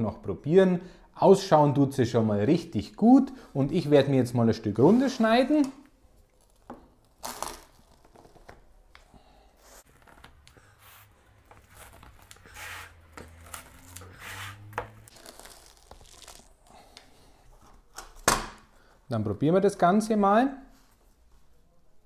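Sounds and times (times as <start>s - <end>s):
pizza crust crunching and tearing: 6.2s - 8.6s, 11.5s - 14.3s, 15.1s - 17.0s.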